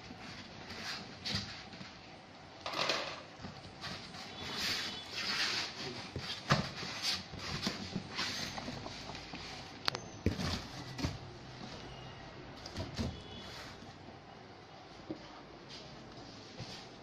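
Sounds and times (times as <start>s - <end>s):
cardboard rustling and scraping: 3.4s - 12.0s, 12.6s - 14.0s.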